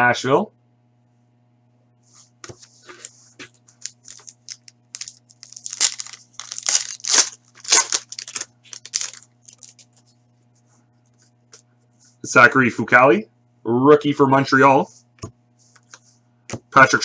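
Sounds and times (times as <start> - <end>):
foil pack crinkling: 2.9 - 10.1.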